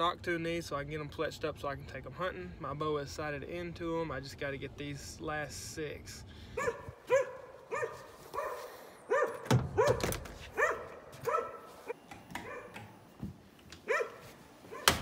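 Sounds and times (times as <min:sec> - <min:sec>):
dog barking: 0:06.6 - 0:12.8, 0:13.8 - 0:15.0.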